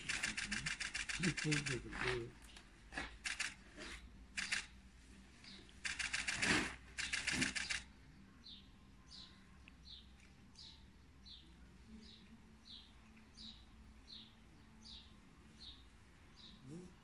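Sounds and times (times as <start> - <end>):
small bird chirping: 4.4 - 4.7, 7.0 - 17.0.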